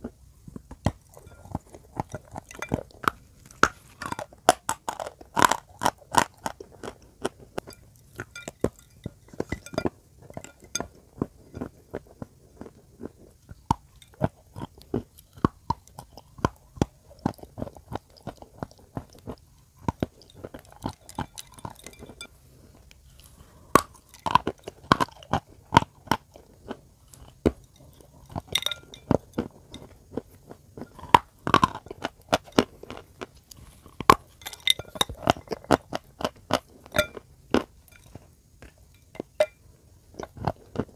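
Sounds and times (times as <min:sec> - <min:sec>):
chalk being bitten and chewed: 0:00.5 - 0:10.6.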